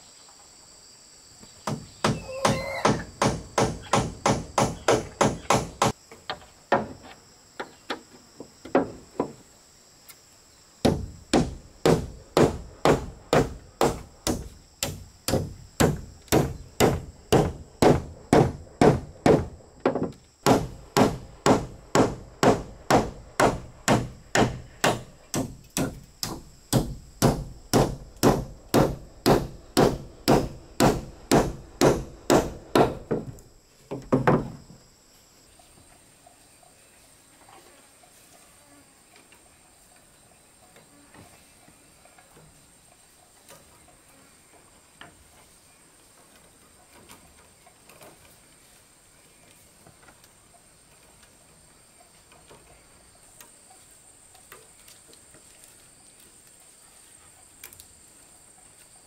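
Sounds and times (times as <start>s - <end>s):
hand tool striking building material: 1.6s - 6.0s, 10.8s - 33.4s.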